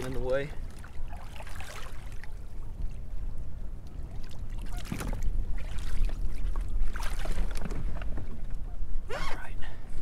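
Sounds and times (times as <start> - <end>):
water splashing against kayak: 0.0 - 3.0, 3.9 - 8.7
wind on microphone: 0.6 - 9.2.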